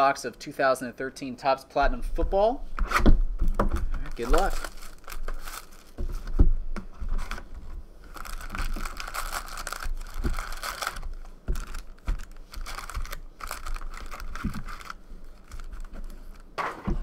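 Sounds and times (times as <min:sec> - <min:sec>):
foil wrappers crinkling: 0:03.5 - 0:06.4, 0:07.1 - 0:16.6.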